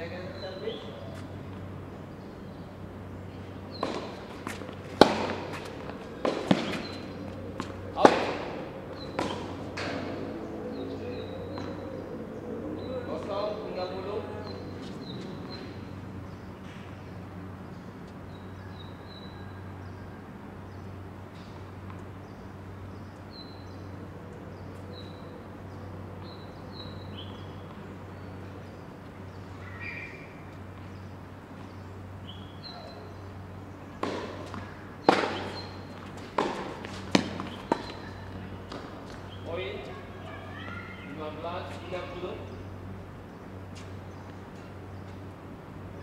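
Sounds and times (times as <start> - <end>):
steady low hum: 0.0 - 41.1
small birds chirping: 0.0 - 46.0
ball bouncing on hard court: 3.7 - 10.1, 34.0 - 38.1
tennis racket striking ball: 3.7 - 10.2, 34.0 - 38.1.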